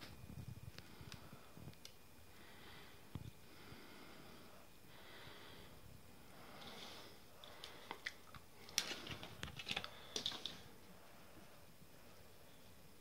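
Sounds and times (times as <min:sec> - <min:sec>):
small crackles and ticks: 0:00.6 - 0:02.0, 0:06.6 - 0:10.7.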